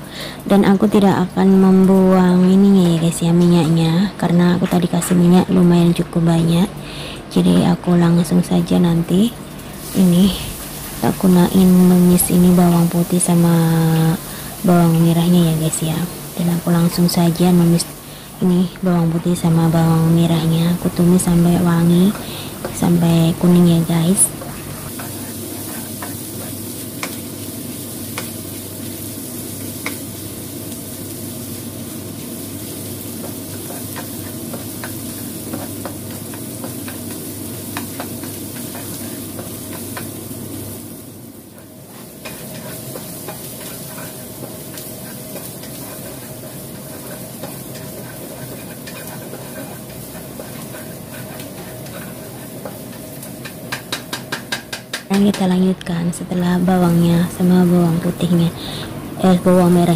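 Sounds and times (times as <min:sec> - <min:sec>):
garlic sizzling in hot oil: 0:00.0 - 0:59.9
spatula scraping and tapping pan: 0:24.4 - 0:27.4, 0:28.1 - 0:28.4, 0:29.8 - 0:30.0, 0:33.1 - 0:40.2, 0:41.5 - 0:55.5.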